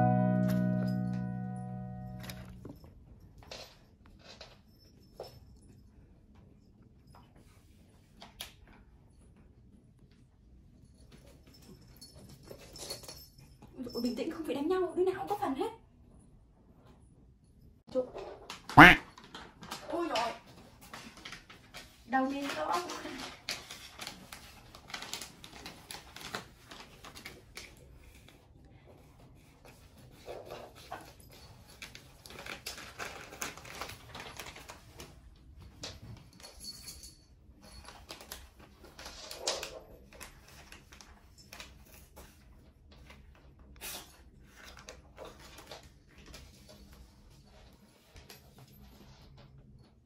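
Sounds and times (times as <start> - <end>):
short loud sounds: 18.8 - 19.0
cat scratching and rustling: 19.2 - 36.2.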